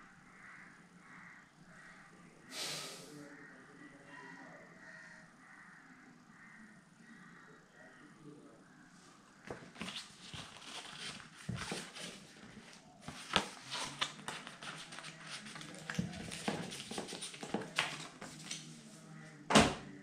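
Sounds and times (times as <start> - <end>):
paper and card rustling: 9.5 - 18.8.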